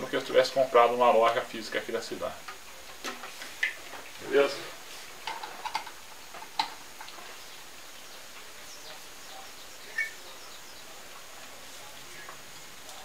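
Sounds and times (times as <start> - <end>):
faint steady hiss: 0.0 - 13.0
short high chirp: 9.9 - 10.2.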